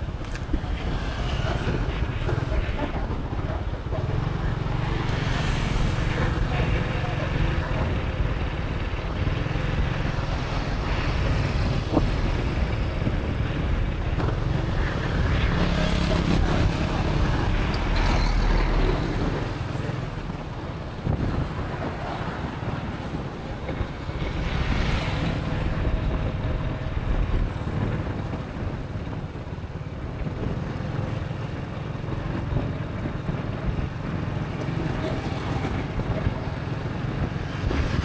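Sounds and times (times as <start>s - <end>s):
passing traffic: 0.0s - 38.0s.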